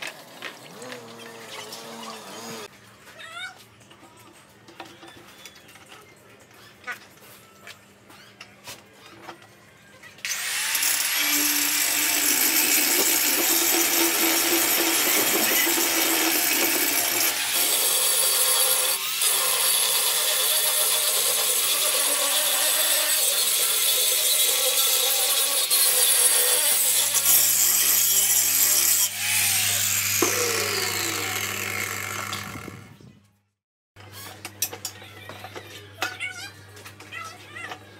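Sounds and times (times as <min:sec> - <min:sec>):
angle grinder grinding steel: 0:10.3 - 0:33.0.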